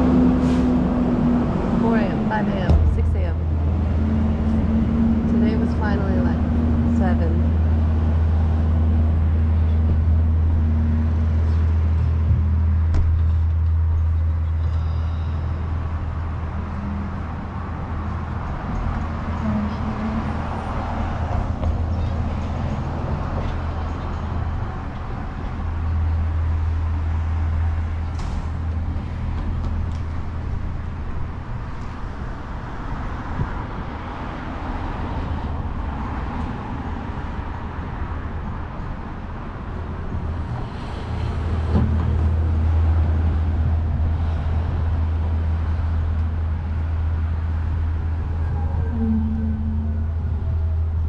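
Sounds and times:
hiss of passing vehicles: 0.0 - 1.8, 14.8 - 48.3
low engine rumble: 0.0 - 51.0.

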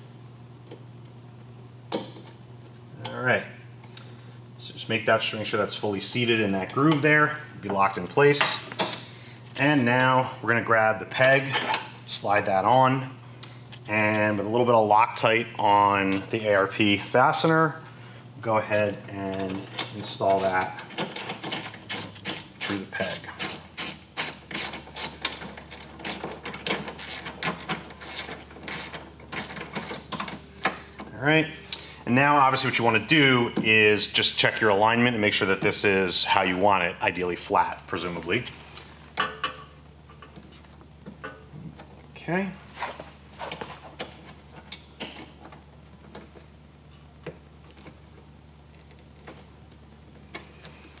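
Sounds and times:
low steady hum: 0.0 - 51.0
hand ratchet clicking: 23.4 - 30.8.

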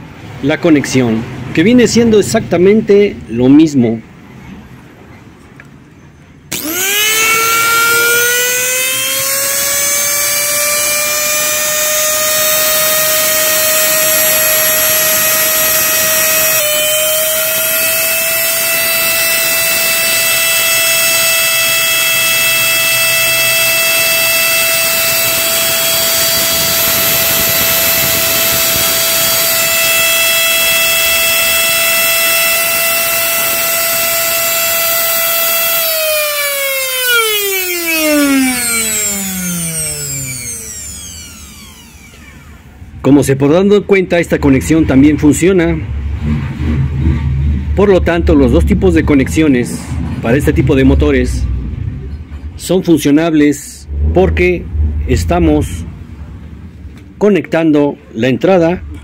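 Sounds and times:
blender motor whining: 6.5 - 42.9.

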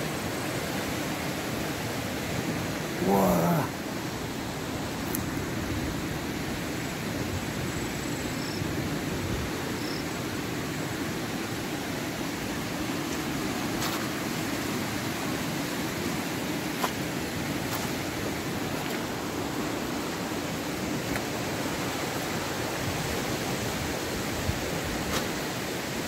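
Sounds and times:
flowing river water: 0.0 - 26.0.

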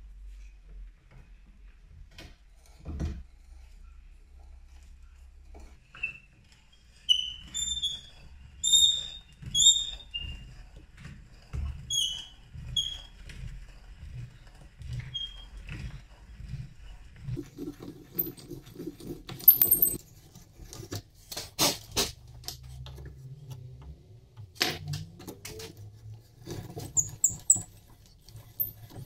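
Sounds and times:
short high squeaks: 7.0 - 10.2.

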